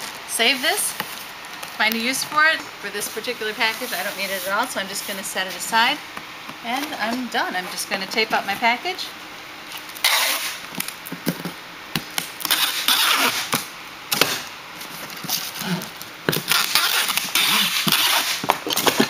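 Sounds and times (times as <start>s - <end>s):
packing tape unspooling: 9.8s - 11.0s, 12.2s - 14.4s, 15.0s - 19.0s.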